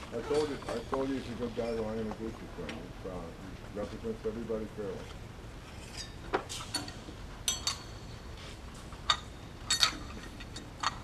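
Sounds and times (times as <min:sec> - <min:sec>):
low background hum: 0:00.0 - 0:11.0
metal tools clinking: 0:00.2 - 0:01.8, 0:05.8 - 0:08.2, 0:09.1 - 0:11.0.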